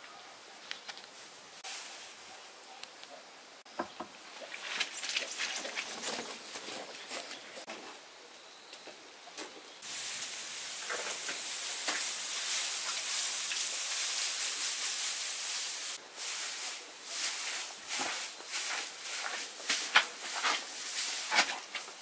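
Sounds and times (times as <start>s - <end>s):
high-pitched hiss: 0.0s - 5.9s, 9.8s - 22.0s.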